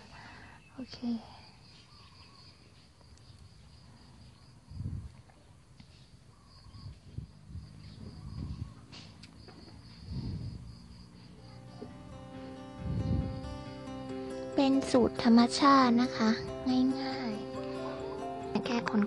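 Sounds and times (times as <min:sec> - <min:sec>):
high-pitched insect chirp: 0:00.0 - 0:05.1, 0:06.0 - 0:19.0
dull low thumps: 0:11.7 - 0:14.1.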